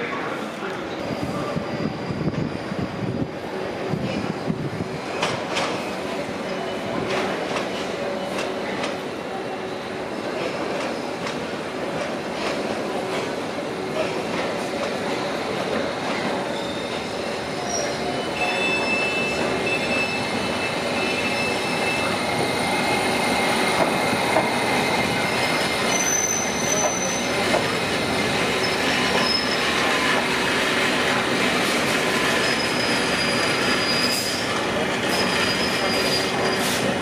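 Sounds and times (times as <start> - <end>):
train wheels rumbling and clattering: 1.0 - 37.0
wheels squealing: 28.5 - 30.2.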